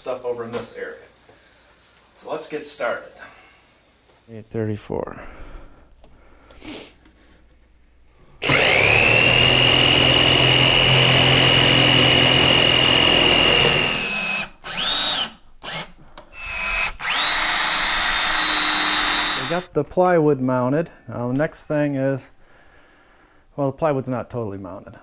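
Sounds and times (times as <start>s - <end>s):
power drill driving a screw: 8.4s - 19.7s
power saw cutting plywood: 8.4s - 19.7s.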